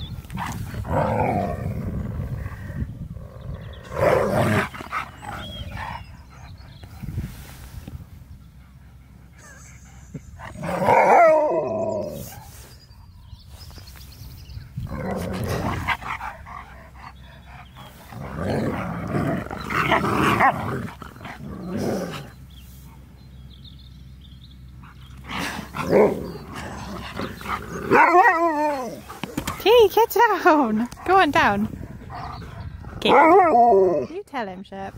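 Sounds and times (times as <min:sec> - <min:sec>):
huskies growly wavering calls: 0:08.5 - 0:12.7, 0:14.8 - 0:23.2, 0:24.6 - 0:34.2.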